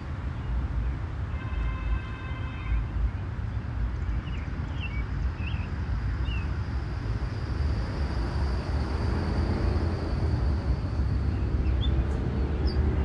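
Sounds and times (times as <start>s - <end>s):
faint engine hum: 0.0s - 13.0s
bird chirps: 4.0s - 6.5s, 11.3s - 13.0s
low rumble: 6.6s - 13.0s.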